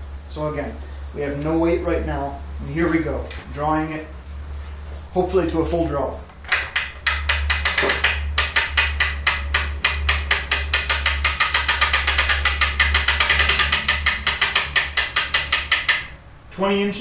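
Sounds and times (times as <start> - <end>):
ratchet clicking rapidly: 6.5 - 16.2.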